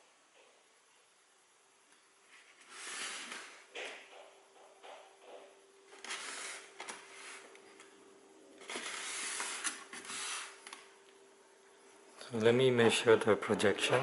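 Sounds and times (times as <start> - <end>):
faint steady hum: 0.0 - 14.0
soft scraping and rustling: 2.2 - 3.7.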